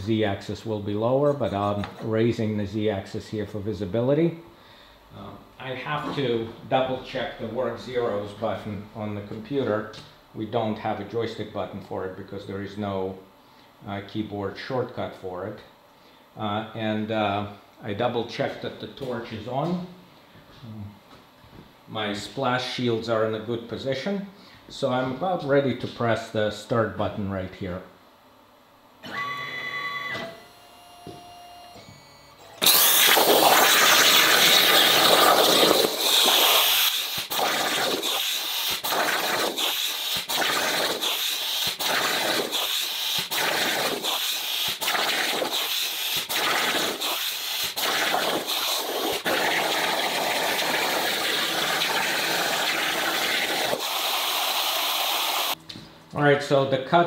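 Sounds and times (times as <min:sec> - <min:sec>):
plasma torch cutting steel hiss: 0:32.6 - 0:55.6.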